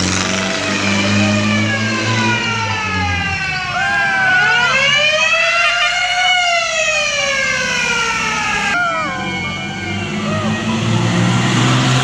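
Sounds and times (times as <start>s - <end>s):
ambulance siren wailing: 0.2s - 12.0s.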